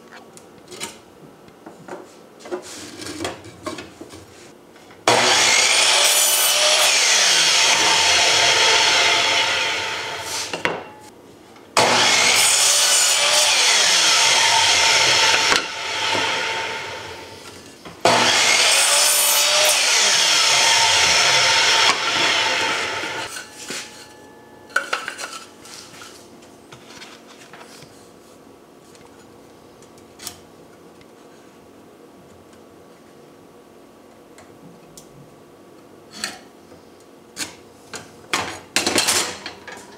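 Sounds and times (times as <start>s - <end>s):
saw blade winding down whine: 5.1s - 10.5s, 11.8s - 17.5s, 18.1s - 23.5s
miter saw cutting wood: 5.1s - 10.6s, 11.8s - 23.4s.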